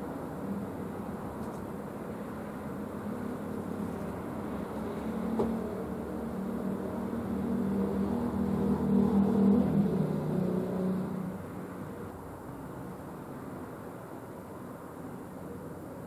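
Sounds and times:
passing vehicle engine hum: 0:00.0 - 0:16.0.

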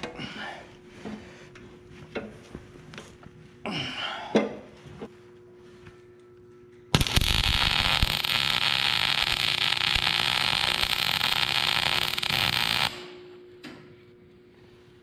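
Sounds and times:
welder arc crackling: 0:06.9 - 0:13.2.

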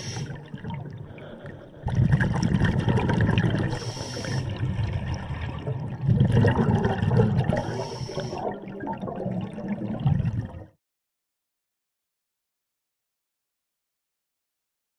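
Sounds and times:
underwater exhaust bubbles gurgling: 0:00.0 - 0:10.7.

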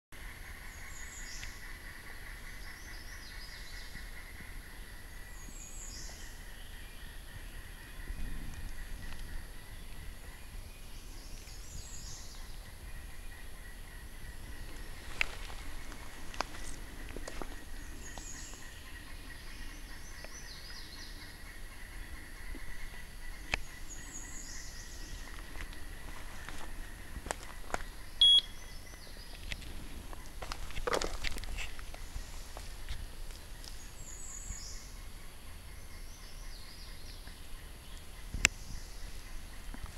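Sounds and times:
bird high falling calls: 0:00.2 - 0:39.9
insect drone: 0:00.2 - 0:39.9
faint steady high tone: 0:28.1 - 0:28.8.

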